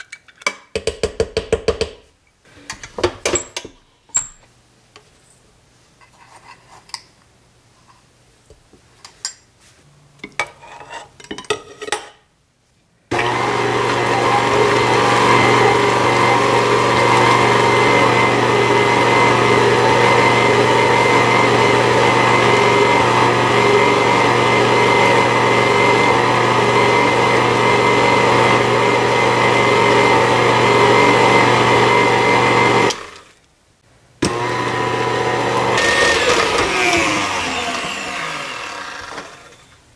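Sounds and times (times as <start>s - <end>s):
beater mashing potatoes in bowl: 13.1s - 33.2s, 34.2s - 39.7s
stand mixer motor running: 13.1s - 33.2s, 34.3s - 39.6s.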